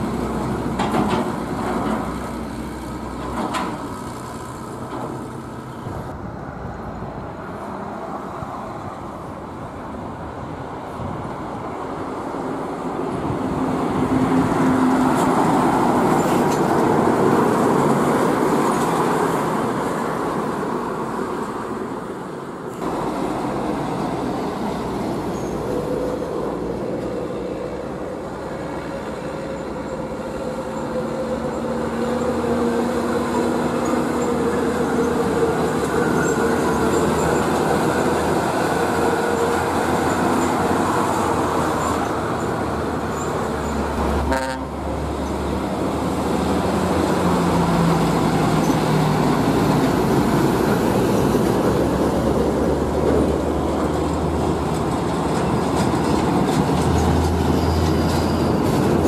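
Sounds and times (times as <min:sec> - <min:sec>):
diesel trucks driving past: 0:00.0 - 0:59.0.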